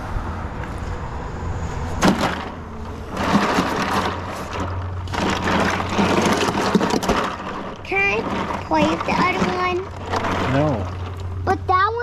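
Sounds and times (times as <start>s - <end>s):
ice cubes crunching and rattling: 3.1s - 11.7s.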